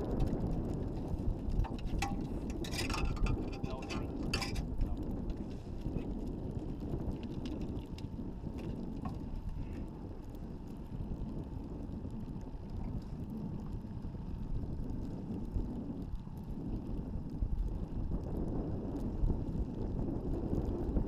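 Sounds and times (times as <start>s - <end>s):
wind noise on microphone: 0.0s - 21.0s.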